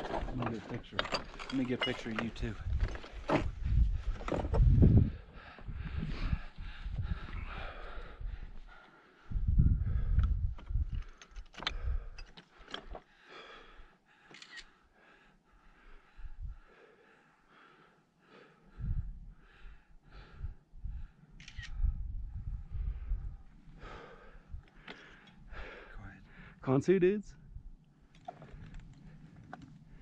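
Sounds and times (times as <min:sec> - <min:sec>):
wind buffeting microphone: 0:02.0 - 0:12.2, 0:16.2 - 0:16.7, 0:18.7 - 0:24.7.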